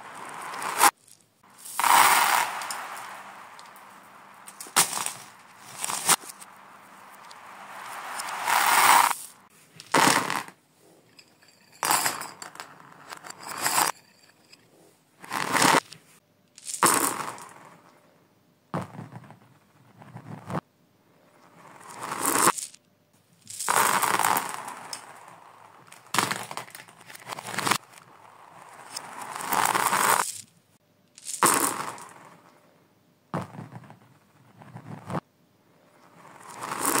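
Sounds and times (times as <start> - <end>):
reversed toys clattering on floor: 0.0 - 18.0, 21.4 - 22.8, 23.4 - 30.5, 31.2 - 32.6, 36.0 - 37.0.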